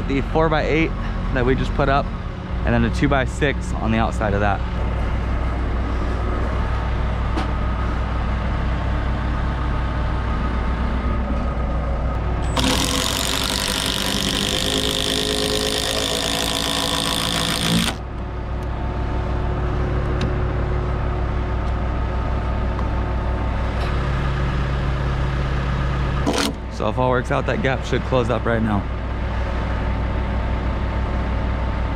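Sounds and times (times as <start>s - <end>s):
impact driver hammering screw: 12.6s - 18.0s, 26.3s - 26.6s.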